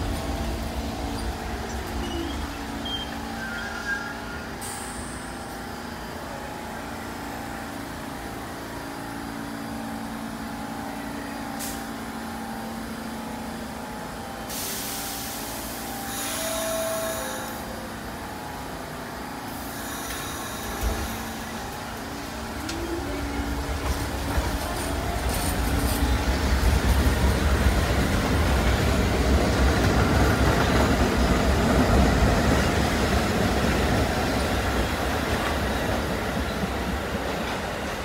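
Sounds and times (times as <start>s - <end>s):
subway train humming: 0.0s - 38.0s
air brakes hissing: 4.5s - 5.4s, 11.6s - 12.0s, 14.5s - 17.6s.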